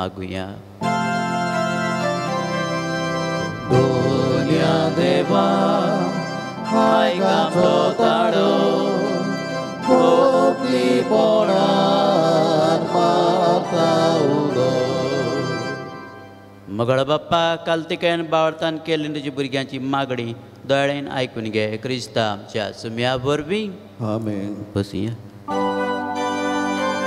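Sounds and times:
organ chord: 0.8 - 16.8, 25.5 - 27.0
voices singing: 3.6 - 16.1.

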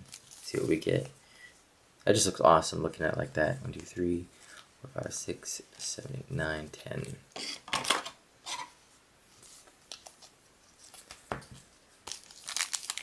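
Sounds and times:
foil wrappers crinkling: 0.0 - 0.8, 12.0 - 13.0.

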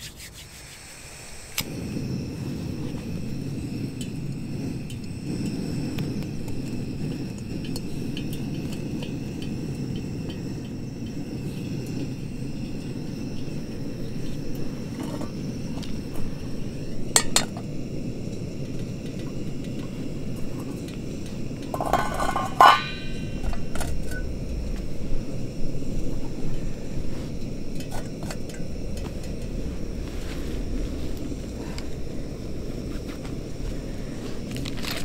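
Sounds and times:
steady low rush: 0.5 - 35.0
camp cookware clinking: 3.2 - 30.0.

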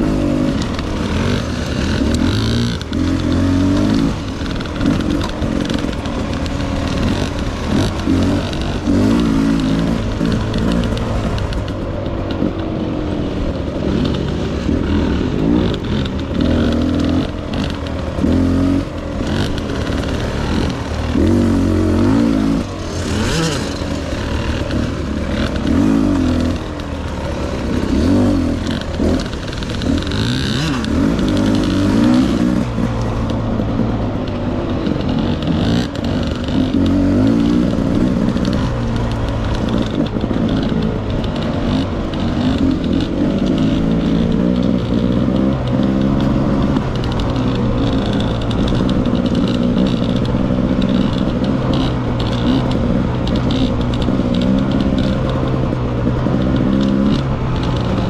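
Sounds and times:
dirt bike engine running: 0.0 - 58.0.

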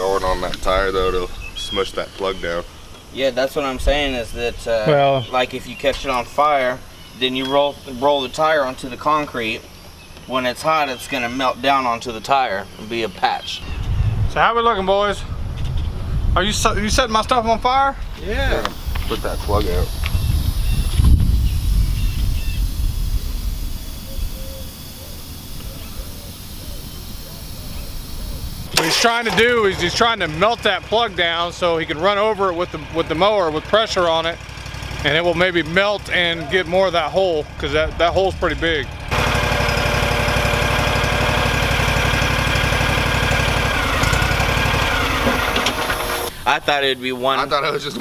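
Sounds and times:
low rumbling on microphone: 13.6 - 24.7
mower engine running: 18.2 - 46.4
faint voices: 23.7 - 30.3.

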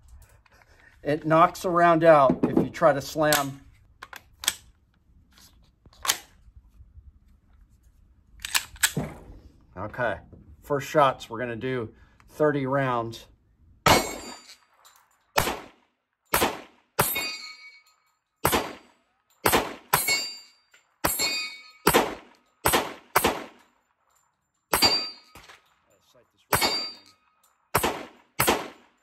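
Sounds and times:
pistol shots: 13.9 - 14.5, 15.3 - 17.4, 18.4 - 20.3, 21.0 - 23.6, 24.7 - 25.4, 26.5 - 27.1, 27.7 - 29.0.

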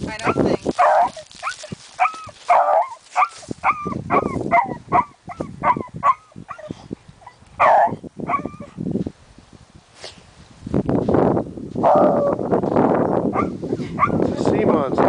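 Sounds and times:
dog yipping and barking: 0.2 - 8.8, 13.3 - 14.3.

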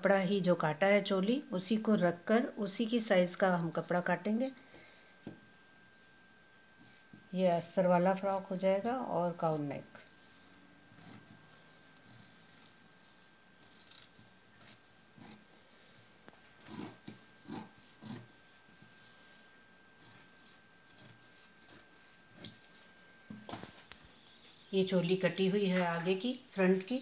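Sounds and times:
scissors snipping fabric: 13.6 - 15.4, 16.7 - 18.3.

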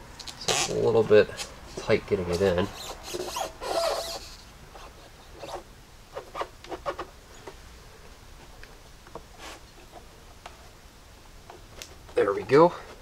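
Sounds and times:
foam and plastic squeaking: 1.7 - 7.5
rustling scrape: 9.3 - 10.1.

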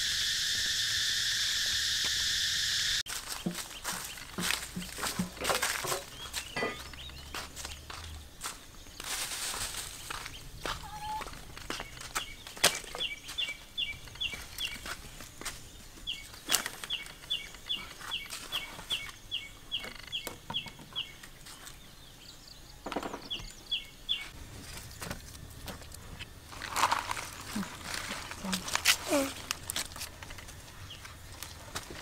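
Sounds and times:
knocks and clatters of handling: 3.3 - 7.2
bird chirping: 5.9 - 9.0, 9.9 - 24.4.

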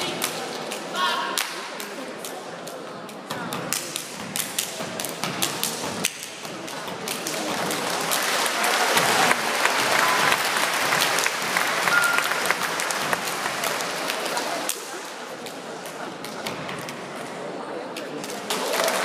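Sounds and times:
dancers clapping and stomping: 6.9 - 14.8
audience applauding and cheering: 7.8 - 14.5.

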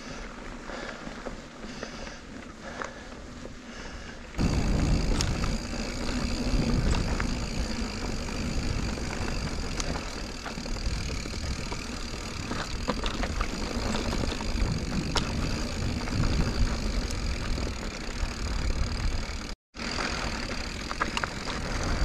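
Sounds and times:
bike tyre and trail noise: 0.0 - 22.0
wind rumble on microphone: 4.4 - 19.4.

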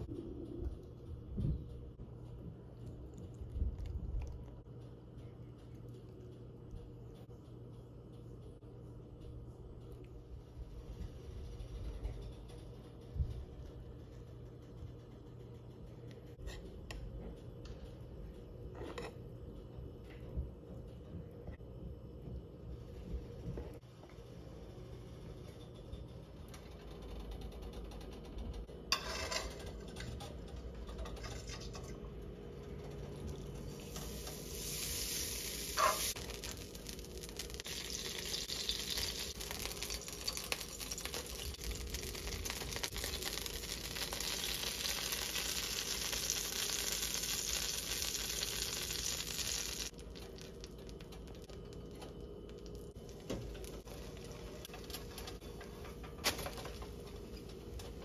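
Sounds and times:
batter sizzling in a frying pan: 33.8 - 51.9.

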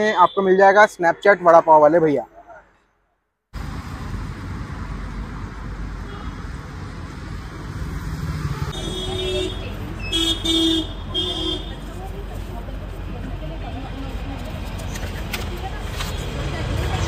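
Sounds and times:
street traffic rumble: 3.5 - 17.0
car horn toots: 8.6 - 11.8.

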